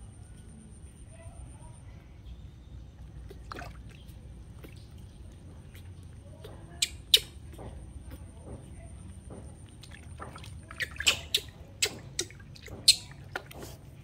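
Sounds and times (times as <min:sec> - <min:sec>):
water splashing and dripping: 0:03.2 - 0:14.0.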